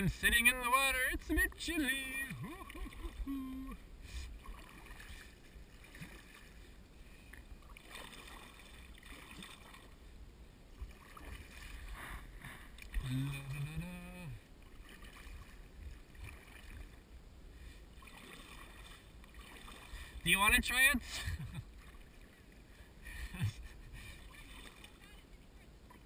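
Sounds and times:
kayak paddle splashing: 0.0 - 26.0
person vocal sound rising: 2.4 - 3.8.

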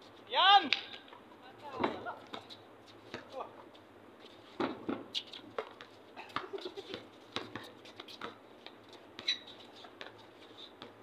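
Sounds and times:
short high squeaks: 9.2 - 9.9.

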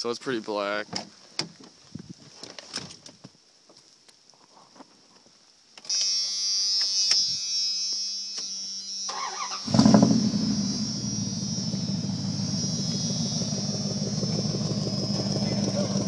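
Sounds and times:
steady electric buzz: 5.9 - 16.0.

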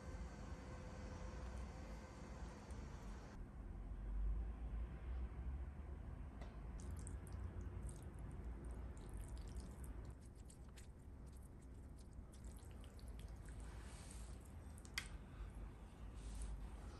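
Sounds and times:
wet squishes of noodles: 6.8 - 16.9.

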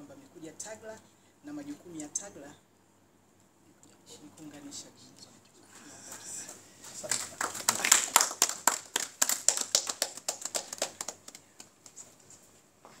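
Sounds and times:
people applauding: 6.9 - 12.0.

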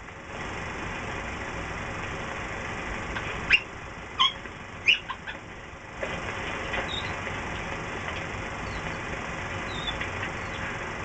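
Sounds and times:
high upward-sliding squeaks: 6.8 - 7.2.

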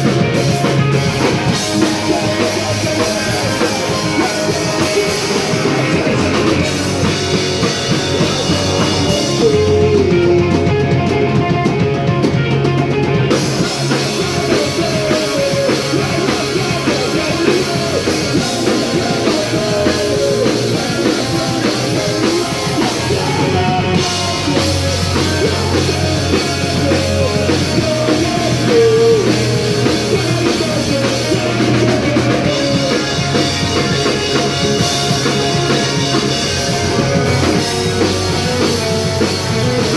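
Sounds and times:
bass guitar: 0.0 - 39.9
drum kit: 0.0 - 39.9
electric guitars: 0.0 - 39.9.

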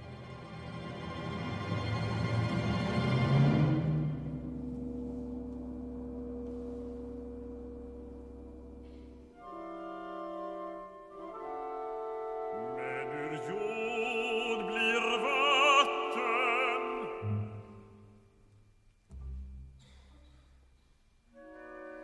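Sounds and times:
orchestral chords: 0.0 - 18.2
person singing with vibrato: 12.6 - 17.7.

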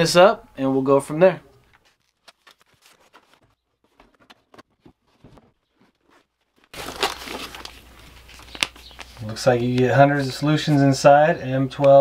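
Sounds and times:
bag and paper rustling: 1.8 - 10.0.

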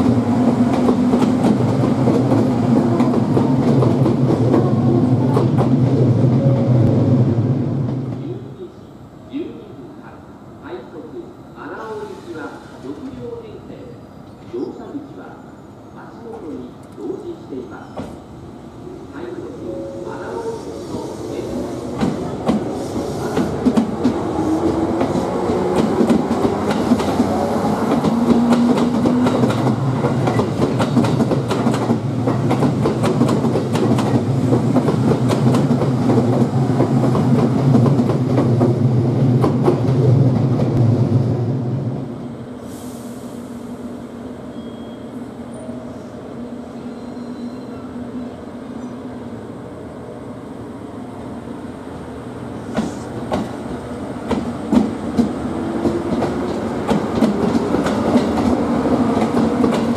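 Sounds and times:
train rumble and hum: 0.0 - 11.7, 16.2 - 43.8, 48.2 - 59.9
rail rumble of arriving train: 0.0 - 59.9
train wheels clicking over rail joints: 22.0 - 38.8, 54.2 - 59.9.

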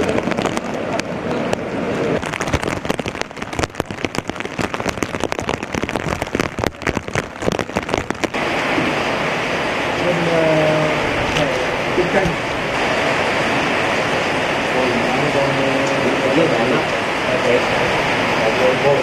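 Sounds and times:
raindrops tapping hard surface: 0.0 - 9.1, 10.0 - 12.5, 15.3 - 17.6
heavy rain pouring: 0.0 - 19.0.

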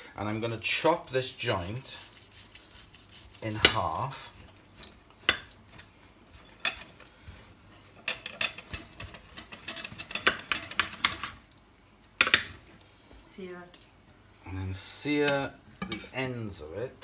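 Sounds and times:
cutlery clinking and scraping plate: 3.5 - 7.1, 7.7 - 11.4, 15.8 - 16.2.

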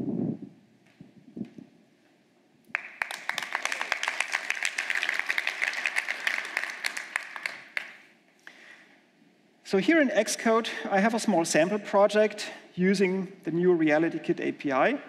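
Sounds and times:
audience applauding: 2.7 - 8.1.

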